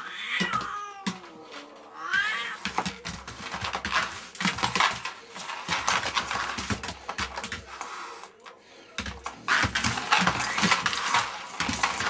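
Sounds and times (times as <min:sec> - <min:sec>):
cat yowling: 0:00.0 - 0:02.6.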